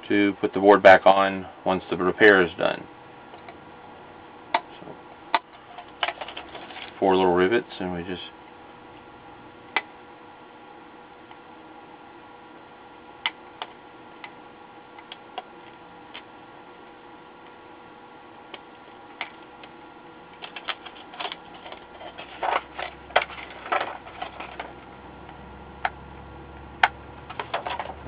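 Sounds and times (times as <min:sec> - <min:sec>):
plastic clacks and rattles: 0:27.3 - 0:28.0.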